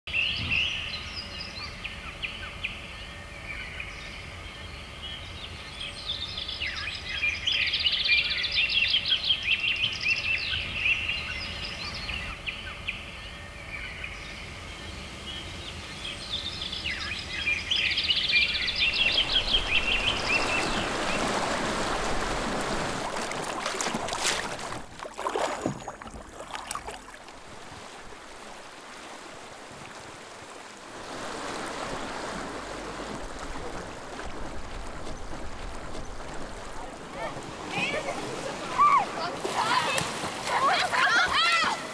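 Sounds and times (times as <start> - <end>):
birds chirping: 0.1 - 27.1
moving water: 0.1 - 41.9.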